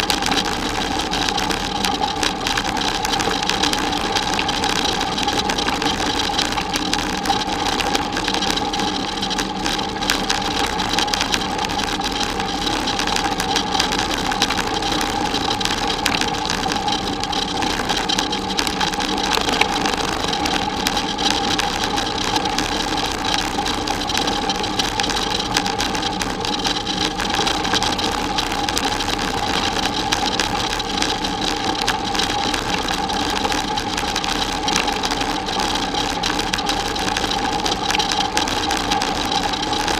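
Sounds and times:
constant hum: 0.0s - 39.9s.

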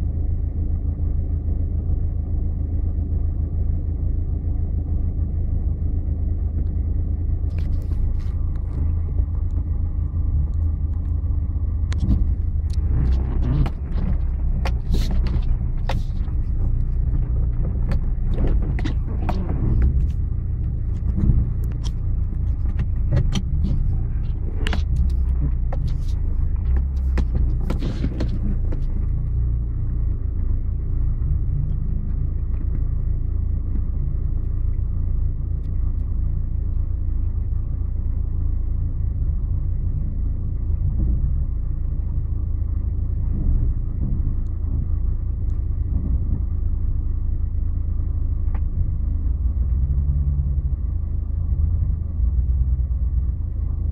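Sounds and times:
vehicle engine running: 0.0s - 53.9s
vehicle knocks and rattles: 11.9s - 34.2s, 43.1s - 47.2s.

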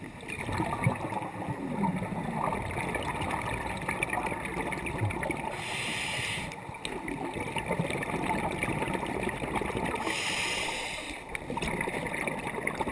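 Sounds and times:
exhaled bubbles gurgling: 0.0s - 12.9s
regulator inhalation hiss: 5.6s - 6.6s, 10.1s - 11.2s.

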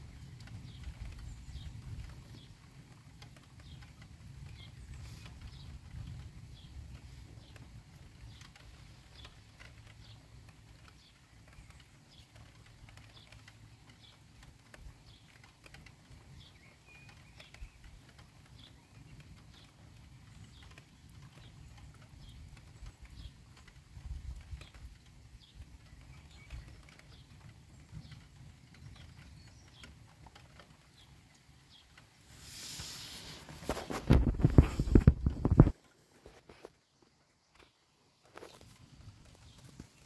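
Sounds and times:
light high ticks: 0.3s - 36.0s
low storm rumble: 30.8s - 35.8s.

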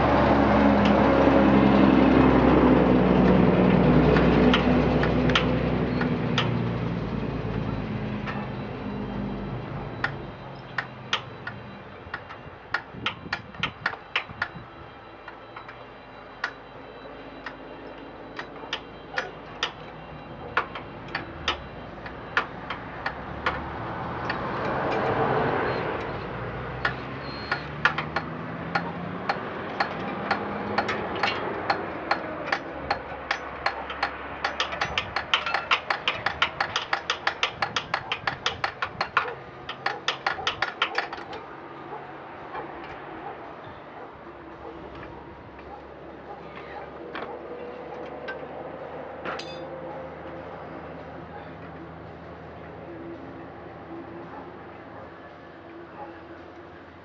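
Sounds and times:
metal tool clicks: 26.8s - 41.4s.

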